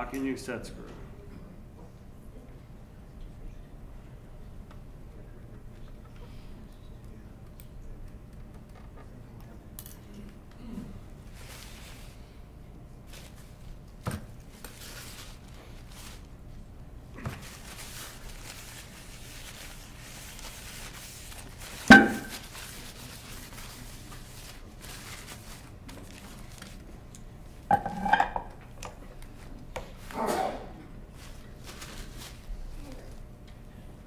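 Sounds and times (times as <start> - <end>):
rag rustling against metal: 17.7 - 22.7.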